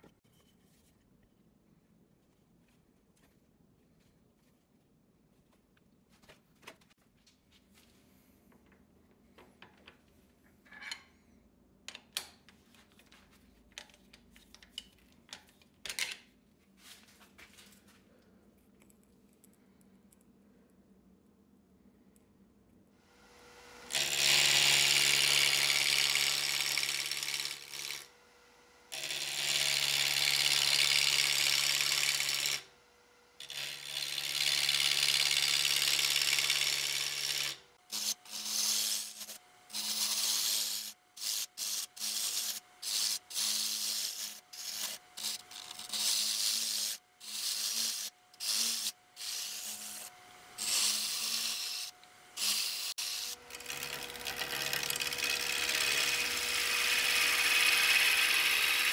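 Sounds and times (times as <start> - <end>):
turning tool cutting wood: 23.2 - 58.9
lathe motor hum: 47.3 - 58.9.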